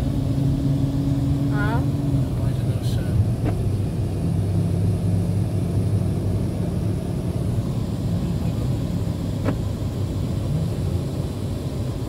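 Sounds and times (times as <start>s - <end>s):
car engine and tyre hum: 0.0s - 12.0s.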